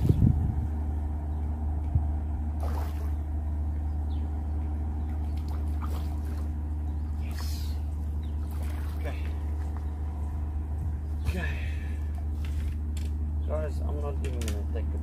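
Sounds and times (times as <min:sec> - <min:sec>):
low motor hum: 0:00.0 - 0:15.0.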